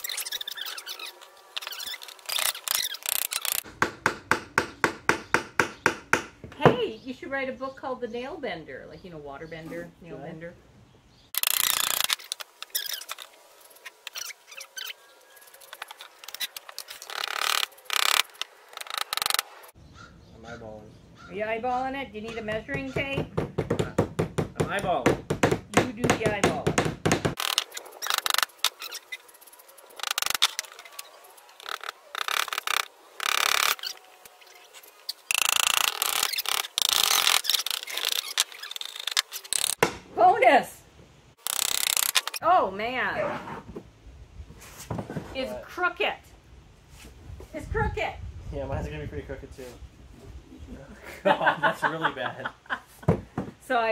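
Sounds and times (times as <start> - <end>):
hammer prying nail from wood: 22.7 - 28.4.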